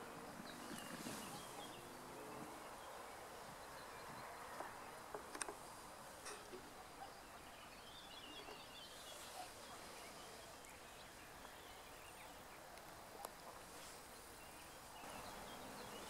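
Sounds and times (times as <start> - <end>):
faint high twittering: 0.1 - 5.8, 6.4 - 16.0.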